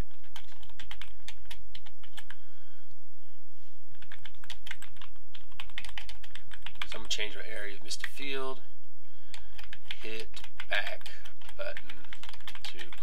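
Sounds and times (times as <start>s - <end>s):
typing on computer keyboard: 0.0s - 2.4s, 3.9s - 7.1s, 9.3s - 13.0s.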